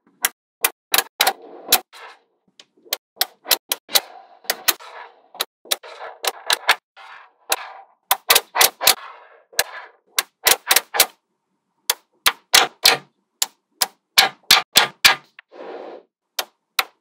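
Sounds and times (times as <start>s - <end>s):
balls scraping together: 1.1s - 2.3s, 2.9s - 11.0s, 15.2s - 16.1s.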